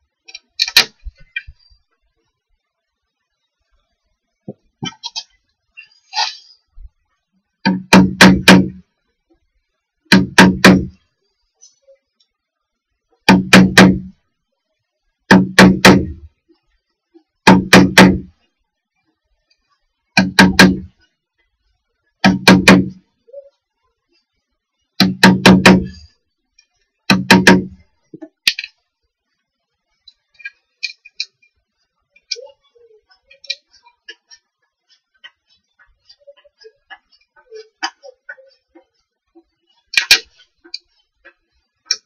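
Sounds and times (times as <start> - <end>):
hammer striking chisel into wood: 7.7 - 8.8, 10.1 - 11.0, 13.3 - 14.1, 15.3 - 16.3, 17.5 - 18.3, 20.2 - 20.9, 22.2 - 23.0, 25.0 - 26.0, 27.1 - 27.8.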